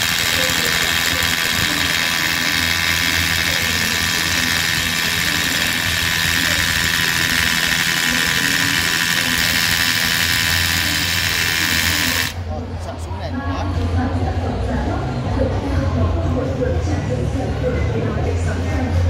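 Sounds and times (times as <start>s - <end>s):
rotary hammer drilling into concrete: 0.0s - 12.4s.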